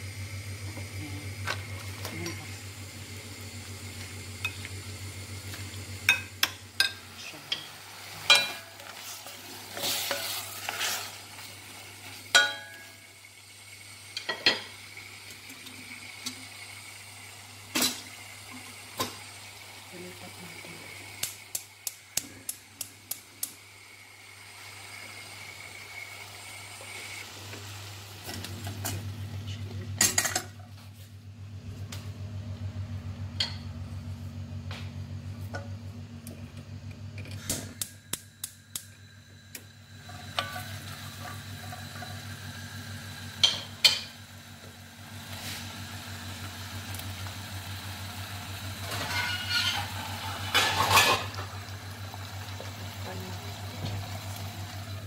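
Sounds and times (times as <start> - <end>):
gas stove igniter ticking: 21.2 - 23.6, 37.5 - 39.7.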